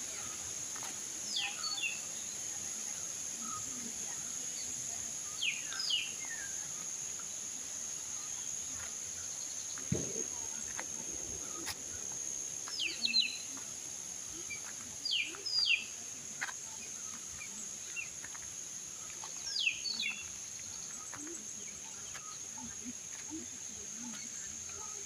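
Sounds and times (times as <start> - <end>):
insects droning: 0.0 - 25.0
bird chirping: 5.2 - 7.4, 11.4 - 13.6, 14.3 - 18.4, 19.0 - 25.0.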